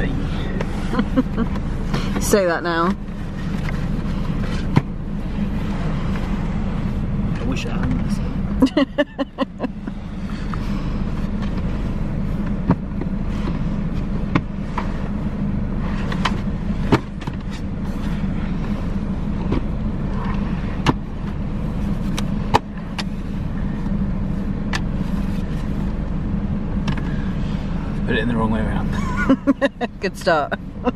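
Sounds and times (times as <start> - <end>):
low hum in car: 0.0 - 30.9.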